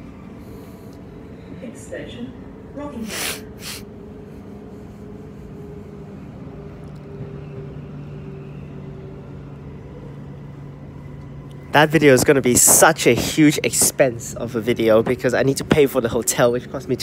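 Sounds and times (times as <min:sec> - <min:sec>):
train rolling rumble: 0:00.0 - 0:17.0.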